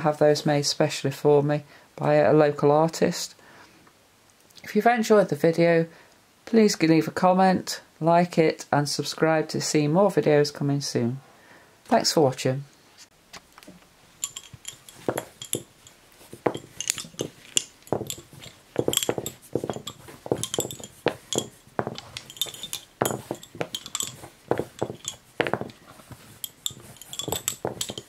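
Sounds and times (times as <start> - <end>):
lace bobbins clicking together: 13.5 - 28.0.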